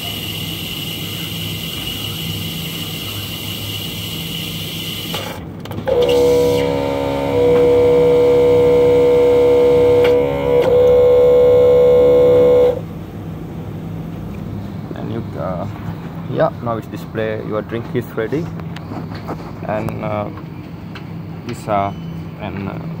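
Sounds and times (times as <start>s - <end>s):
coffee machine loud pitched drone: 0.0s - 13.2s
coffee machine humming and whining: 0.0s - 13.9s.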